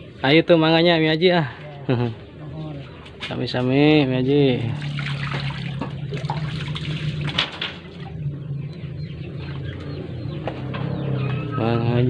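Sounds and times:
water running and splashing: 4.6 - 8.2.

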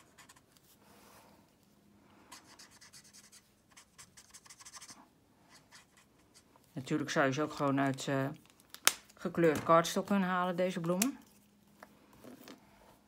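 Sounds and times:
marker scratching on paper: 0.0 - 0.5, 2.3 - 6.5.

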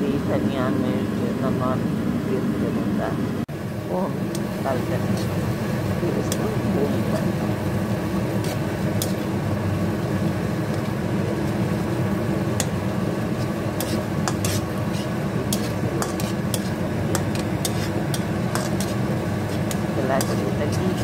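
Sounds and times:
steady low hum: 0.0 - 21.0
spatula scraping pan: 4.3 - 5.6, 8.2 - 9.3, 12.6 - 21.0
paste sizzling in oil: 4.3 - 21.0.

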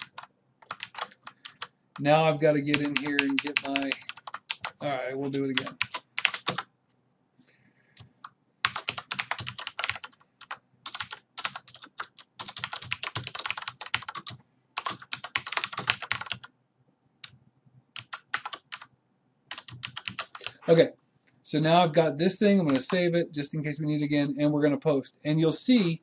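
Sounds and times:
typing on a keyboard: 0.0 - 1.7, 2.7 - 6.7, 8.0 - 16.5, 18.0 - 18.9, 19.5 - 20.5, 22.7 - 23.0.

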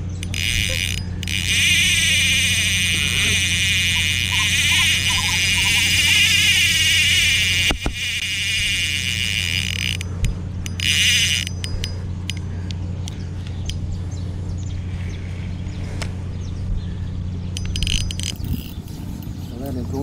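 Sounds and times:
fishing reel drag buzzing: 0.0 - 12.8, 17.6 - 19.6.

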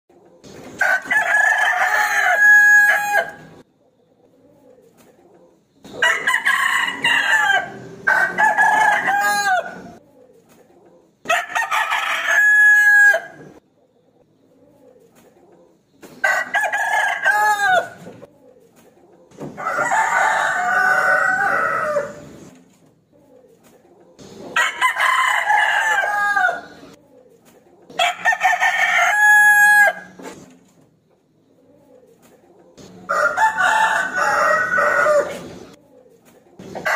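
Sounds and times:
rooster crowing: 0.8 - 3.6, 6.0 - 10.0, 11.3 - 13.4, 16.2 - 18.1, 19.6 - 22.3, 24.6 - 26.8, 28.0 - 30.2, 33.0 - 35.6.

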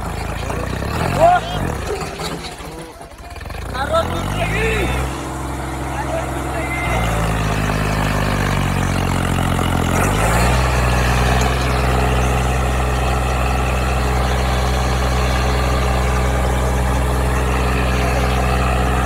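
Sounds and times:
tractor diesel engine under load: 0.0 - 19.0.

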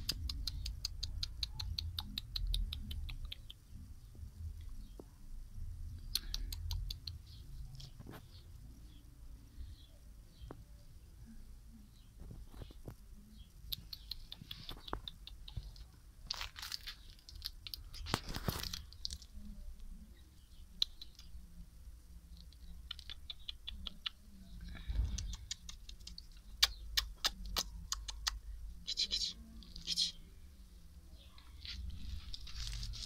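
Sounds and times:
small clicks and crackles: 13.7 - 19.9, 31.4 - 33.0
short rustling bursts: 31.6 - 33.0.

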